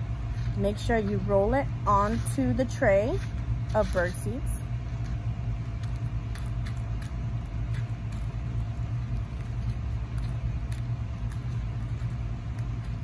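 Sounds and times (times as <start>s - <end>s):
birdseed rustling: 0.0s - 13.0s
low mechanical hum: 0.0s - 13.0s.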